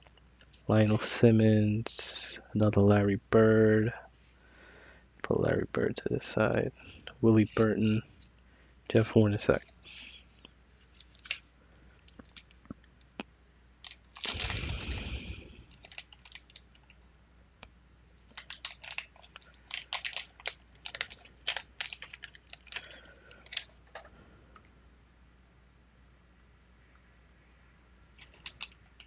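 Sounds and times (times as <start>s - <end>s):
paper wrapper tearing and crinkling: 10.8s - 12.6s, 13.8s - 16.8s, 18.3s - 23.8s, 28.2s - 29.0s.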